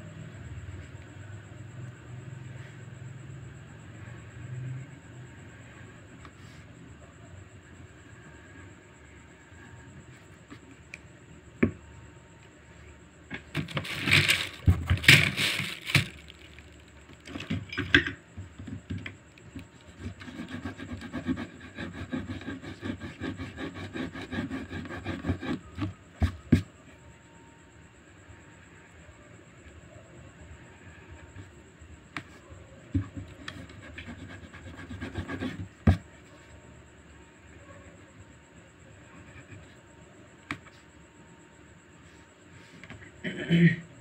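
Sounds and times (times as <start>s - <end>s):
pencil scratching on paper: 19.8s - 25.9s, 33.4s - 36.0s.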